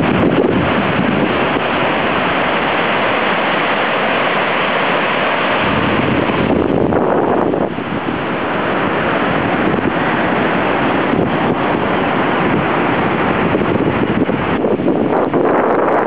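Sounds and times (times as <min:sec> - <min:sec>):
wind buffeting microphone: 0:00.0 - 0:03.4, 0:05.4 - 0:16.0
surf breaking on beach: 0:00.0 - 0:16.0.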